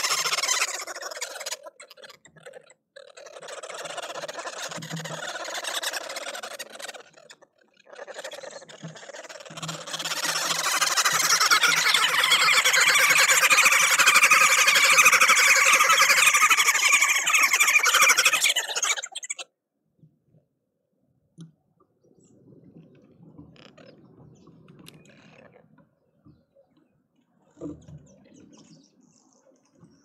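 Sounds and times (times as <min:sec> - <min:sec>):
birds cackling in chattering chorus: 0:00.0 - 0:19.4.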